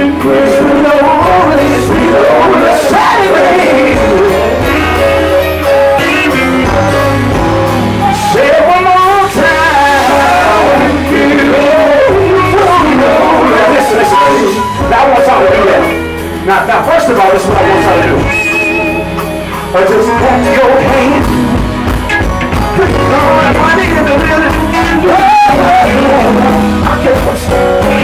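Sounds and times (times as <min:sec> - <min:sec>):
male voices singing gospel: 0:00.0 - 0:16.0, 0:22.7 - 0:28.0
electric guitar and bass: 0:00.0 - 0:28.0.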